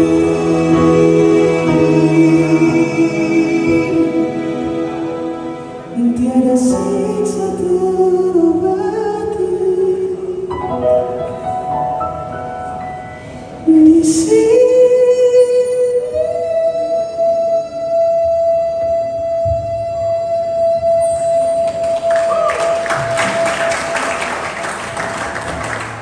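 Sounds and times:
man singing into microphone: 0:00.0 - 0:05.0, 0:05.9 - 0:10.5
electronic keyboard: 0:00.0 - 0:14.5.

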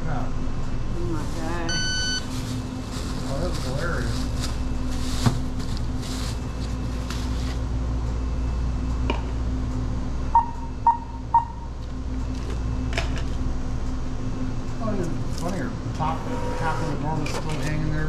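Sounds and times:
steady low hum: 0:00.0 - 0:18.0
short electronic beeps: 0:01.7 - 0:02.3, 0:10.3 - 0:11.6
bags rustling: 0:02.2 - 0:07.6.

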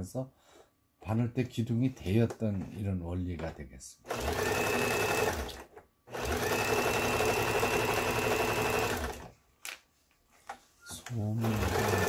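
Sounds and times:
sewing machine stitching: 0:04.1 - 0:09.3, 0:11.4 - 0:12.0.

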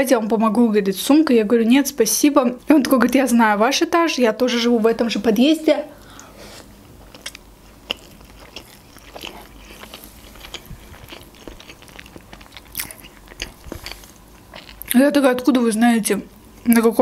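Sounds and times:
person chewing food: 0:06.9 - 0:15.0.

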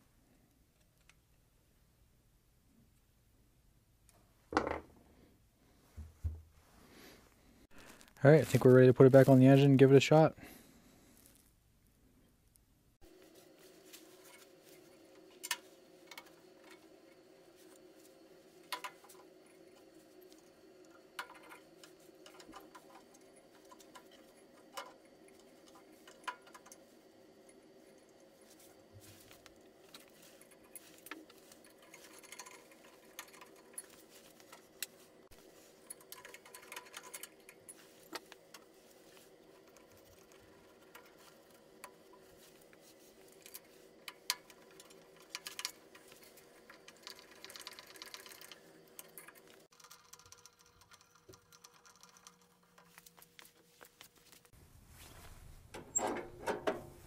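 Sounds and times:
faint steady hum: 0:00.0 - 0:57.0
clicks and metallic rattles: 0:14.0 - 0:53.6, 0:55.7 - 0:57.0.

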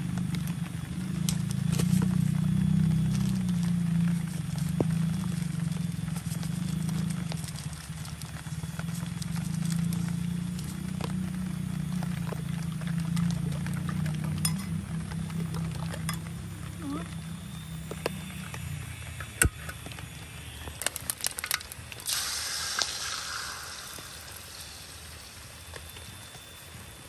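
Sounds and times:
egg sizzling in hot oil: 0:18.4 - 0:27.0.

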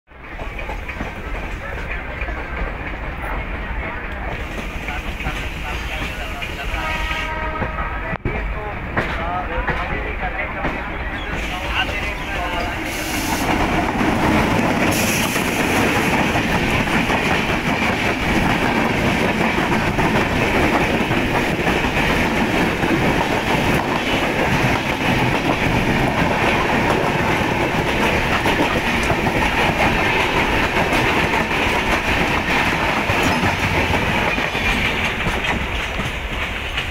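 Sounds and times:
train passing at high speed: 0:00.1 - 0:36.9
wheels clacking over rail joints: 0:10.6 - 0:36.9.

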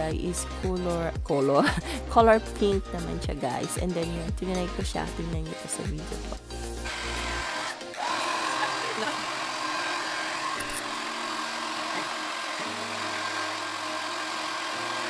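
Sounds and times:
hair dryer blowing: 0:06.7 - 0:15.0.

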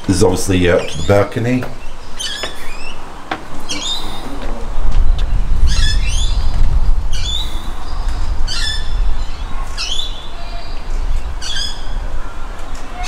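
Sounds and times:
bird squawking: 0:03.6 - 0:04.5.

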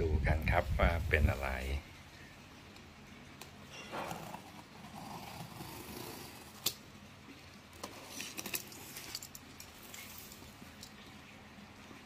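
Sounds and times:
blade scratching along tape: 0:04.2 - 0:06.7
small clicks and scrapes: 0:07.7 - 0:11.0.

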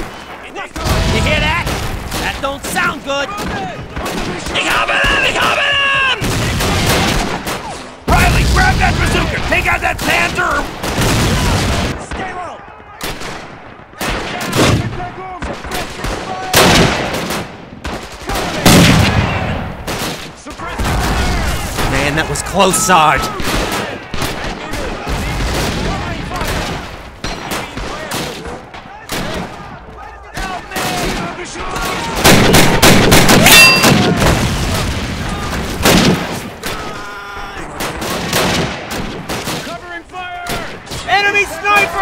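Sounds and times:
rifle and machine-gun fire: 0:00.0 - 0:05.6, 0:06.2 - 0:29.8, 0:30.4 - 0:36.8, 0:37.7 - 0:39.9
booming explosions: 0:00.8 - 0:02.8, 0:06.2 - 0:12.2, 0:13.2 - 0:28.2, 0:31.8 - 0:36.4
loud blasts: 0:20.8 - 0:24.2.

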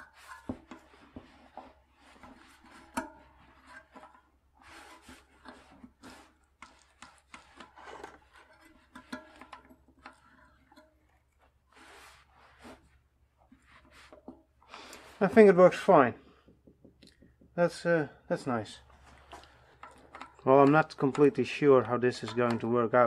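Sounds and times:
bicycle hub rubbing and clicking: 0:00.0 - 0:13.0.

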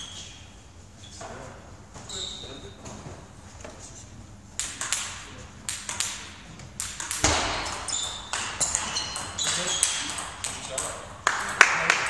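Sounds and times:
table tennis ball clicking: 0:04.6 - 0:11.6.

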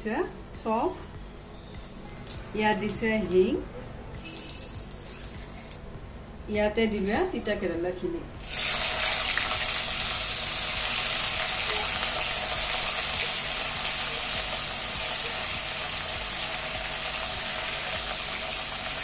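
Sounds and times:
vegetables sizzling in hot oil: 0:04.2 - 0:05.8, 0:08.4 - 0:19.0.

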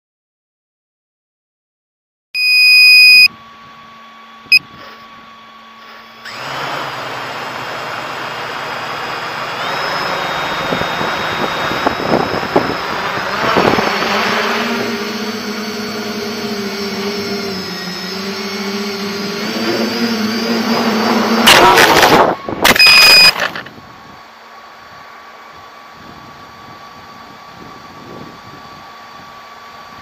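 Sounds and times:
quadcopter motors whining: 0:02.4 - 0:30.0
quadcopter crashing clatter: 0:06.3 - 0:23.8
wind rush: 0:10.7 - 0:14.8.

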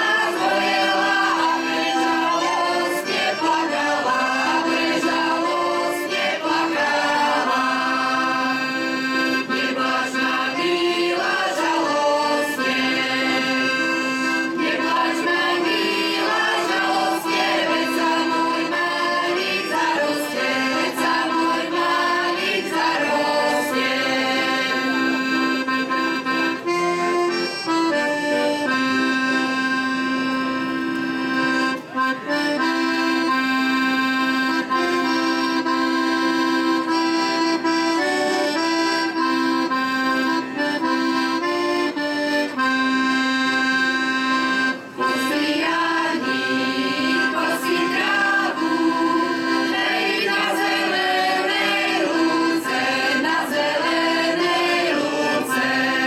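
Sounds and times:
women singing: 0:00.0 - 0:08.7, 0:09.4 - 0:13.8, 0:14.6 - 0:25.0, 0:45.1 - 0:56.0
accordion playing folk tune: 0:00.0 - 0:56.0.

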